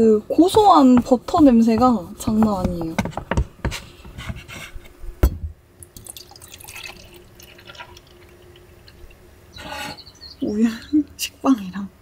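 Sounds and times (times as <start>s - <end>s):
knocks: 0.4s - 4.4s
milk pouring into metal mug: 5.8s - 9.2s.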